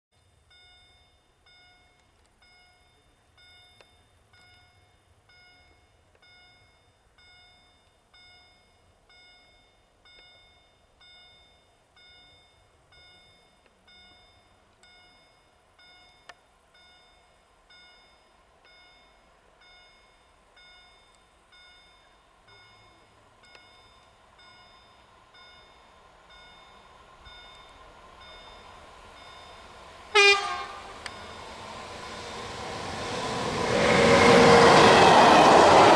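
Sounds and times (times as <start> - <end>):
level crossing warning bell: 0.2 - 33.3
approaching freight train: 0.2 - 35.9
locomotive horn blast: 30.1 - 31.0.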